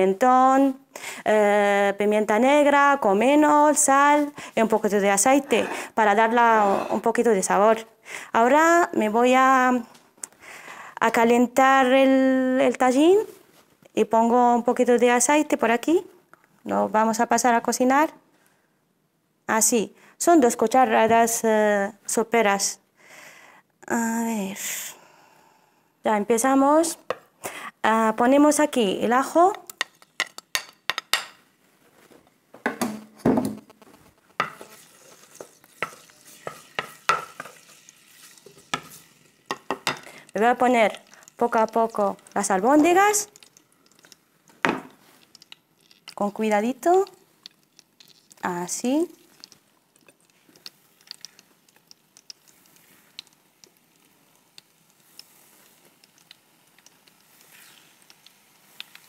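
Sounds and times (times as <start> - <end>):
garlic sizzling in oil: 34.4 - 59.0.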